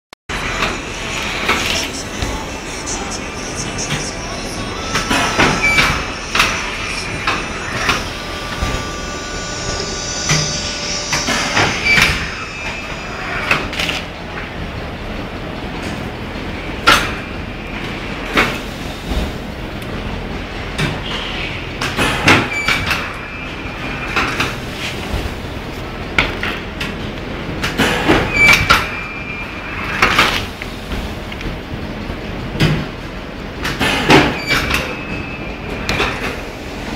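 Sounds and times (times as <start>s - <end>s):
machine whine: 0.3s - 36.9s.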